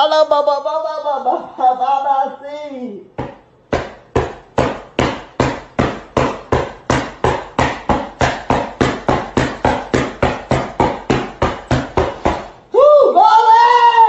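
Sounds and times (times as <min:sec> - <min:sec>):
rhythmic thumps: 0:03.2 - 0:12.6.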